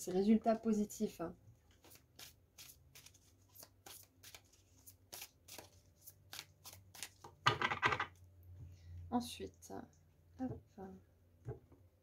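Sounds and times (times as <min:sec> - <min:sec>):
rustle of cards: 0:01.7 - 0:07.3
cards being shuffled: 0:01.7 - 0:08.0.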